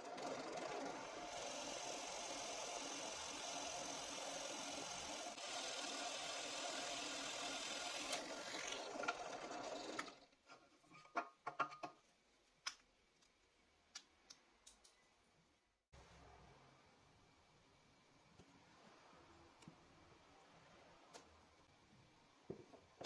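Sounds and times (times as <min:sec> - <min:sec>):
drill press boring into wood: 0:00.0 - 0:10.2.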